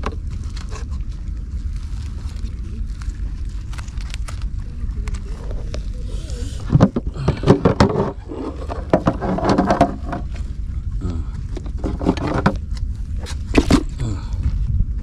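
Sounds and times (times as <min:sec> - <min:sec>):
low rumble: 0:00.0 - 0:15.0
plastic knocks clicks and scrapes: 0:06.6 - 0:10.4, 0:11.6 - 0:13.9.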